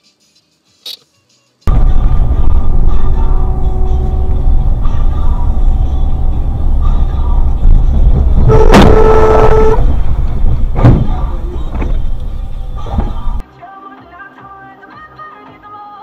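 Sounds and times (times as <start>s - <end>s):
car horn: 1.7s - 13.4s
car road and engine rumble: 1.7s - 13.4s
sharp knocks: 10.5s - 12.1s.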